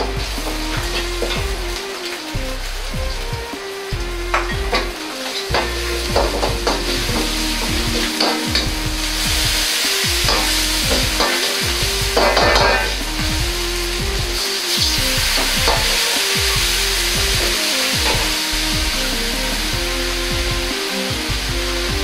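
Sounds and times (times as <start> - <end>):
food sizzling in hot oil: 0.0 - 21.7
metal ladle scraping a wok: 4.4 - 13.2.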